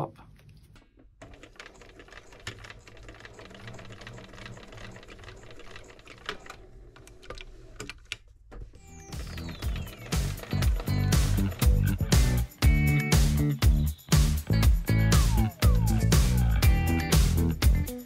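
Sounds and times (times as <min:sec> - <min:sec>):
sewing machine stitching: 0:01.2 - 0:08.0.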